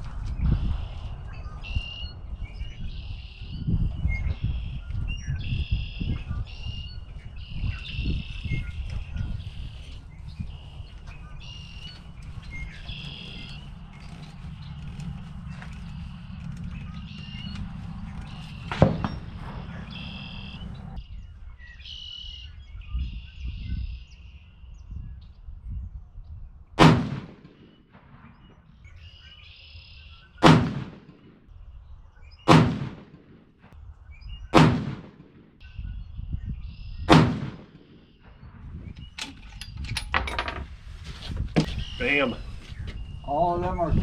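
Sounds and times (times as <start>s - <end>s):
rifle shots: 18.3s - 20.9s, 26.8s - 28.5s, 30.4s - 31.5s, 32.5s - 33.6s, 34.5s - 35.6s, 37.1s - 38.2s.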